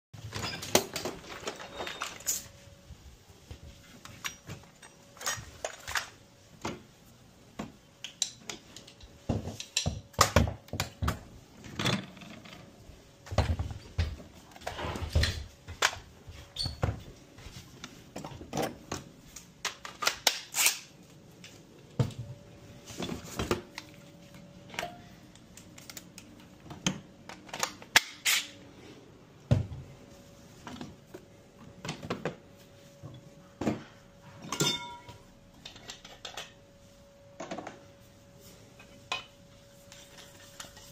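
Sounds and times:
tools rummaged in toolbox: 0.2 - 2.6.

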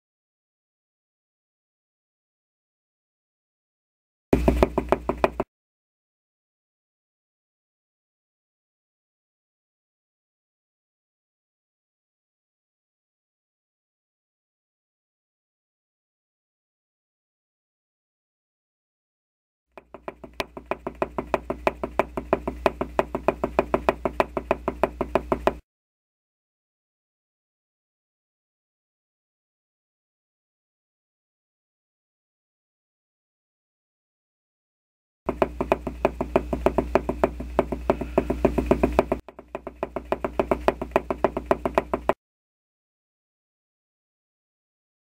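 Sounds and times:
rapid knocking: 4.4 - 5.5, 19.8 - 25.6, 35.3 - 42.2
tapping footsteps sound effect: 4.4 - 5.5, 19.8 - 25.6, 35.3 - 42.2.

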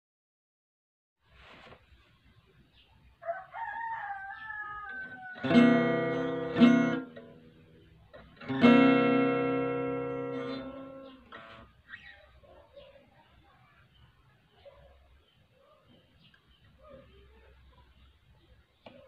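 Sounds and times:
rooster crowing: 3.2 - 6.5
acoustic guitar strums: 5.4 - 7.5, 8.1 - 11.7.

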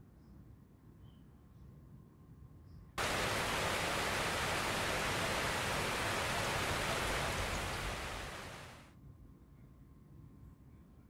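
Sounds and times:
steady hiss of static: 3.0 - 8.8.

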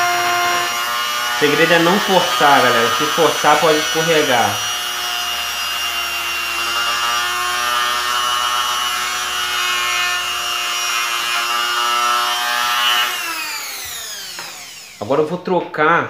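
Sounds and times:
rotary tool grinding: 0.0 - 15.2.

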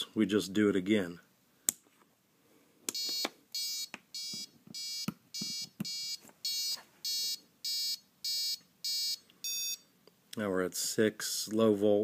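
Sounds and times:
short electronic beeps: 3.0 - 9.8.

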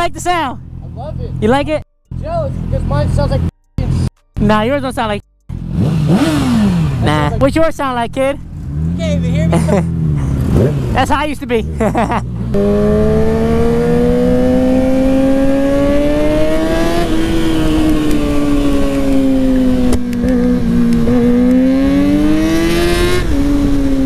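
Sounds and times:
motorcycle engine revving: 5.4 - 24.0.

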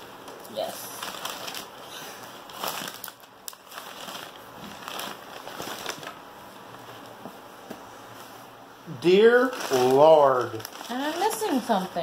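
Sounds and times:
craft items rustling and crinkling: 0.7 - 7.4, 9.4 - 12.0.

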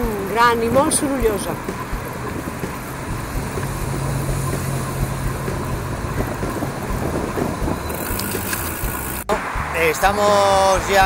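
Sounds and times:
wind on microphone: 0.0 - 9.2
city traffic hum: 0.0 - 11.0
bicycle tyres crunching on gravel: 1.7 - 9.3.

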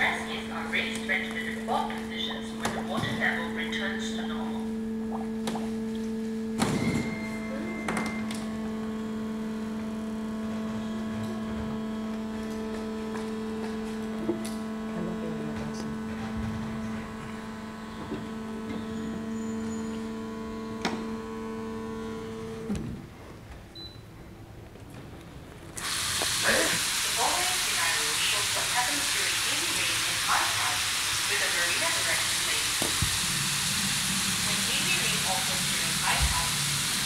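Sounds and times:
electric water pumps humming: 0.0 - 37.0.

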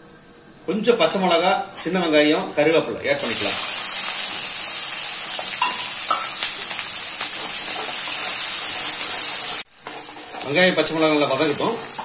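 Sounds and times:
food sizzling in hot oil: 3.2 - 12.0.

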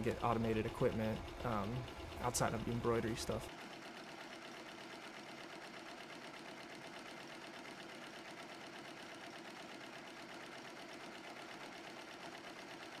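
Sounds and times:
embroidery machine clattering: 0.0 - 3.5.

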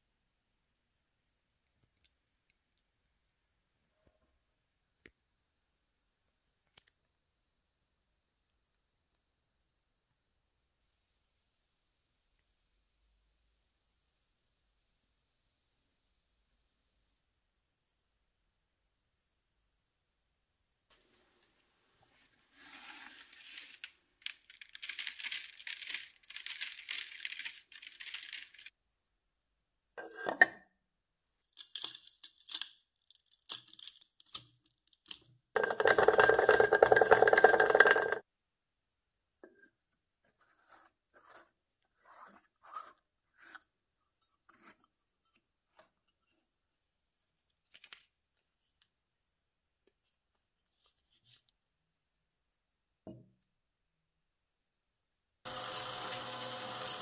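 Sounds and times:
sand pouring through funnel: 22.1 - 28.7, 55.5 - 57.0.

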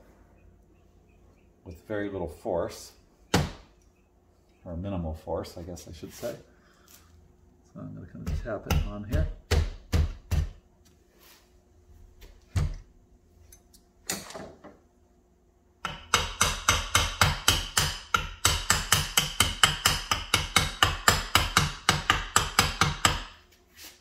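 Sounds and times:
hammer tapping on metal: 15.8 - 23.3.

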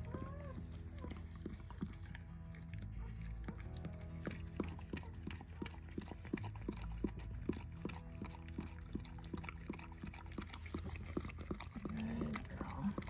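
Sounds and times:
dog panting: 0.0 - 13.0
low hum: 0.0 - 13.0.

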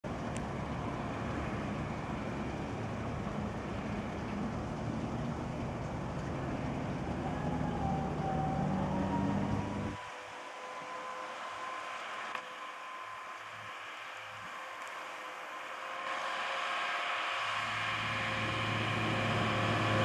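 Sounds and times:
faint high whine: 0.1 - 20.0
truck diesel engine running: 17.1 - 20.0.

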